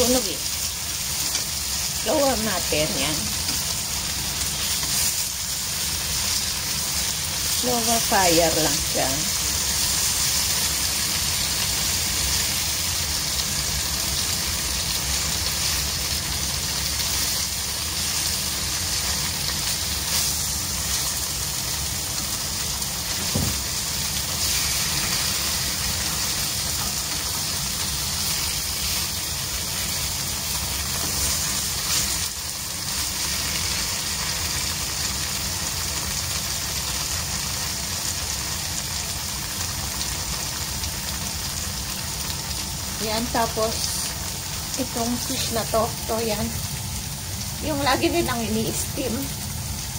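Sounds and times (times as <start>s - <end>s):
tofu sizzling in oil: 0.0s - 49.9s.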